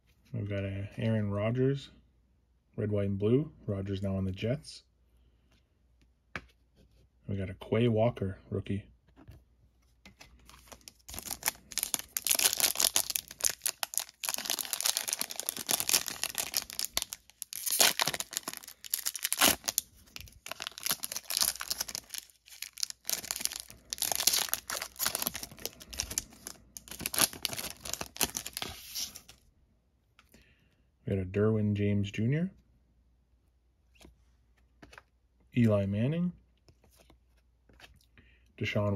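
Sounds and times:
foil wrapper crinkling and tearing: 10.5s - 29.4s.

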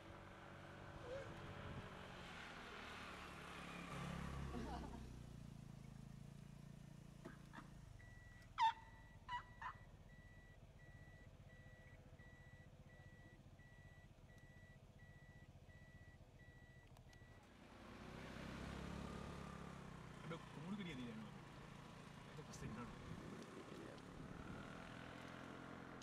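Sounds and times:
low vehicle rumble: 0.0s - 26.0s
short animal calls: 8.6s - 9.9s.

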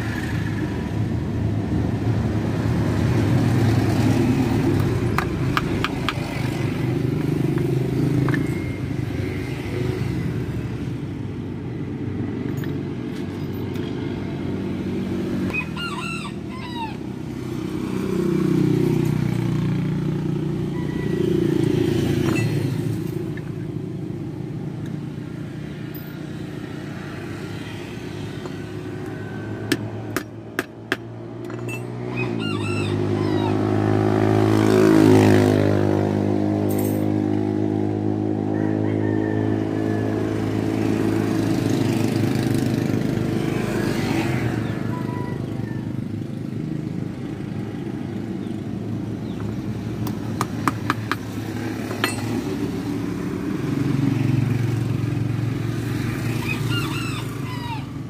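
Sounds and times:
low rumble of passing vehicles: 0.0s - 58.0s
rooster crowing: 15.5s - 17.3s, 20.4s - 22.2s, 28.9s - 29.7s, 32.1s - 33.8s, 38.4s - 40.9s, 44.1s - 46.0s, 56.1s - 58.0s.

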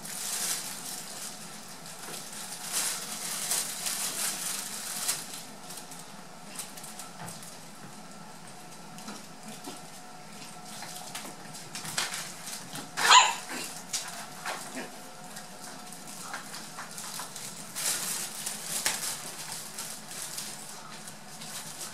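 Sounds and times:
puppy scuffling on wooden floor: 0.0s - 21.9s
puppy yip: 13.0s - 13.5s.

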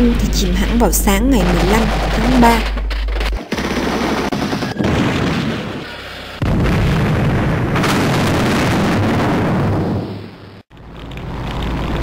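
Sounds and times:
shell explosions: 0.9s - 10.6s
naval gunfire: 1.4s - 10.4s.

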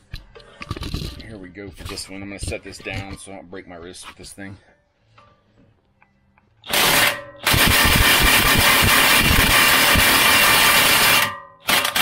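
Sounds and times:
impact wrench hammering: 6.6s - 12.0s.

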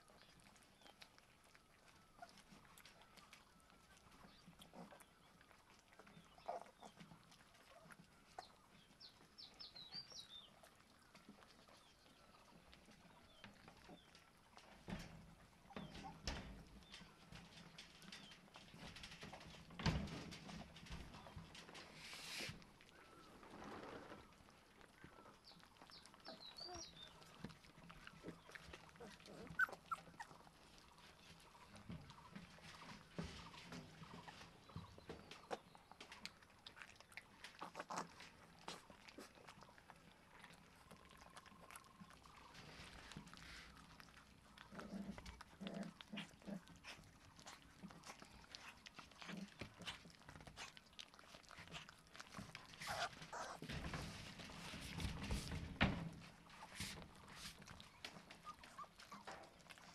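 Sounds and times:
chewing and licking clicks: 0.0s - 15.1s, 24.4s - 32.6s, 34.6s - 53.6s, 56.5s - 59.9s
puppies squeaking and whimpering: 4.2s - 8.7s, 25.8s - 36.0s, 51.3s - 55.3s, 56.6s - 59.9s
puppy growling: 4.5s - 8.4s, 26.1s - 31.6s, 36.3s - 54.0s.

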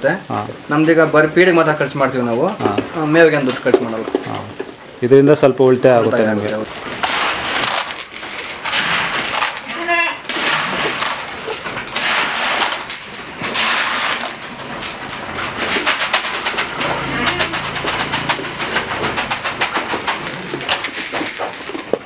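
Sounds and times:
feed poured rustling: 2.0s - 22.0s
sheep eating crackling clicks: 6.1s - 22.0s.

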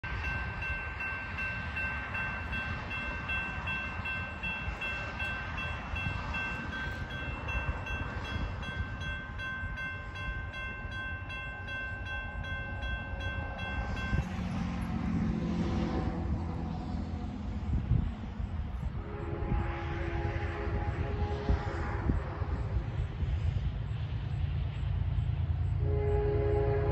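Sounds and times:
railroad crossing bell ringing: 0.0s - 15.1s.

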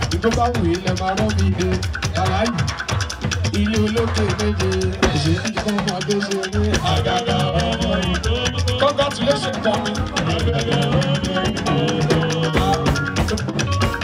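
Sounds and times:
keyboard: 0.0s - 14.0s
percussion: 0.0s - 14.0s
person singing: 3.6s - 14.0s.

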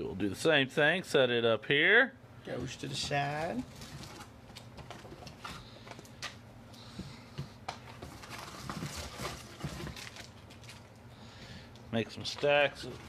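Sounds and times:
foil wrappers rustling: 2.6s - 6.3s, 7.8s - 11.1s.

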